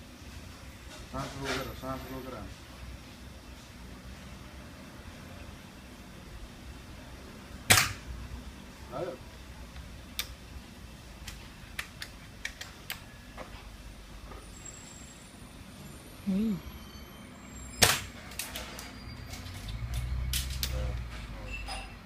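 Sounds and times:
airsoft rifle shot: 7.7s - 8.0s.

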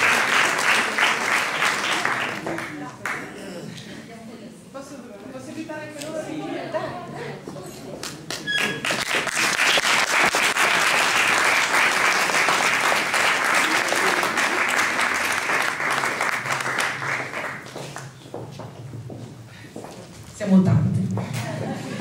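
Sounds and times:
audience applauding: 0.0s - 3.3s, 8.1s - 18.2s.

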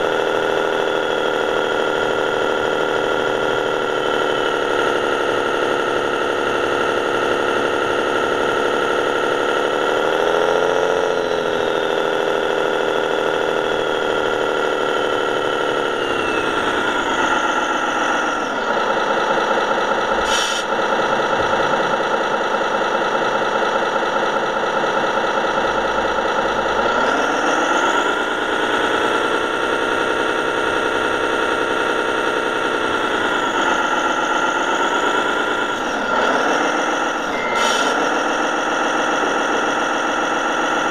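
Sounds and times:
diesel engine sound from small speaker: 0.0s - 40.9s.

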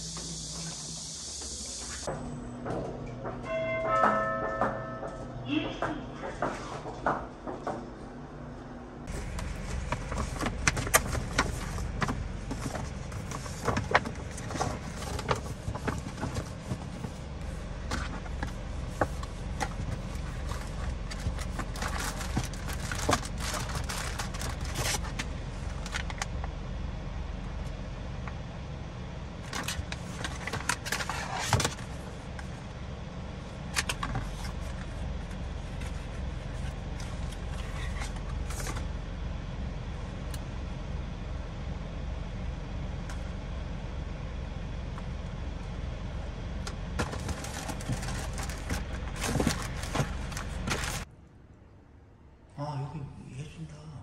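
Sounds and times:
low rumble inside a car: 8.8s - 51.1s
paper gift box rustling: 9.1s - 26.0s, 47.0s - 51.1s
plastic packaging crinkling: 19.9s - 25.2s, 47.0s - 51.1s.

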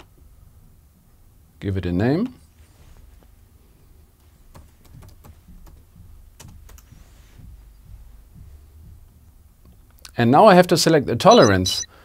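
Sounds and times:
laptop keyboard typing: 4.5s - 5.8s.

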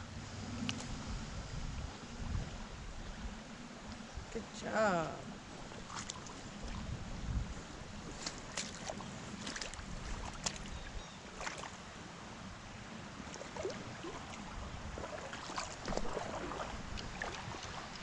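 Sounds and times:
stream water rippling: 0.0s - 18.0s
short water splashes: 4.7s - 7.0s, 7.9s - 11.8s, 13.2s - 18.0s.

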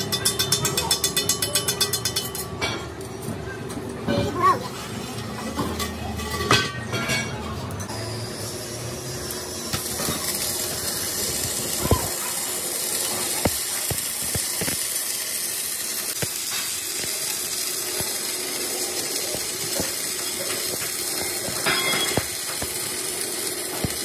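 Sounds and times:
welding arc crackling hiss: 7.9s - 24.0s
sharp welding pops: 9.7s - 24.0s.

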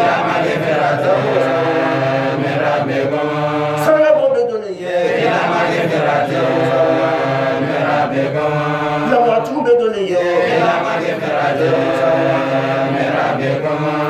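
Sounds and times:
man chanting melodically: 3.7s - 5.1s, 9.0s - 11.0s.

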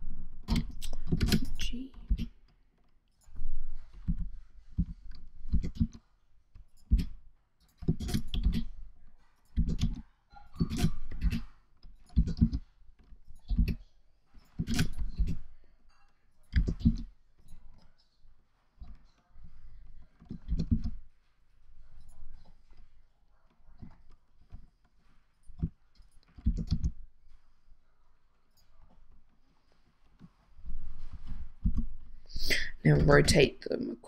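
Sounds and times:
keyboard keystrokes: 26.4s - 26.9s.

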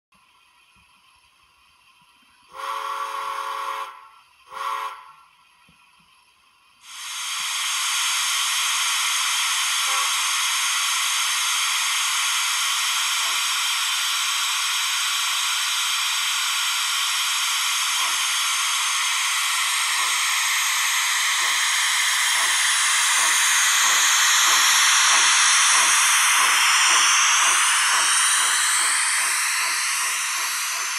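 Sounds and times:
steam hissing: 2.4s - 5.2s, 6.8s - 30.9s
model steam whistle: 2.5s - 5.3s, 9.8s - 10.7s.

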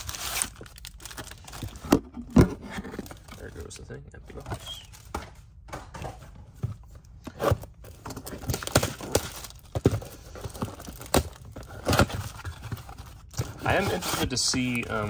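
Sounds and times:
cardboard rustling and tearing: 0.0s - 3.7s, 7.3s - 15.0s.

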